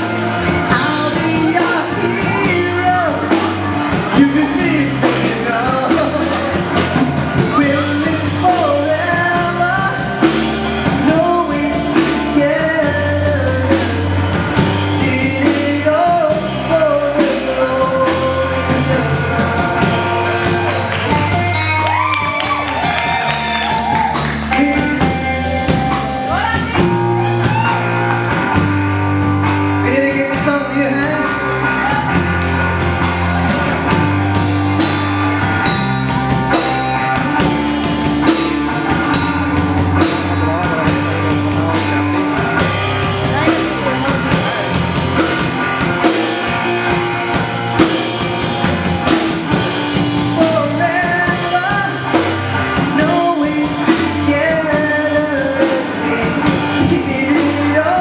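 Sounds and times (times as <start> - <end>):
drum kit: 0.0 - 58.0
electric bass: 0.0 - 58.0
electric guitar: 0.0 - 58.0
man singing into a microphone: 0.4 - 22.8, 24.5 - 27.0, 29.8 - 32.2, 40.0 - 45.3, 49.0 - 58.0.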